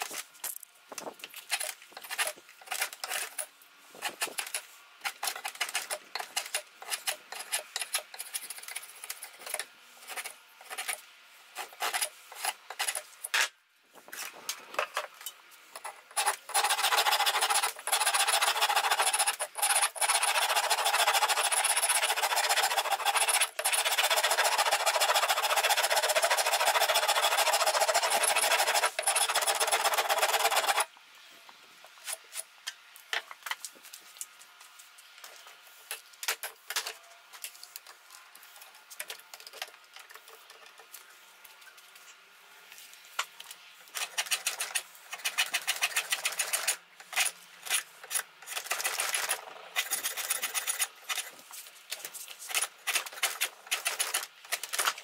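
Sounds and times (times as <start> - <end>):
rasp scraping wood: 15.8 - 30.9.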